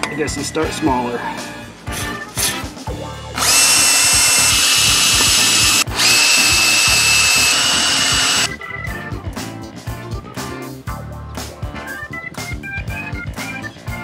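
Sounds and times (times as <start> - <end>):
cordless drill drilling into bolt: 3.4 - 8.5.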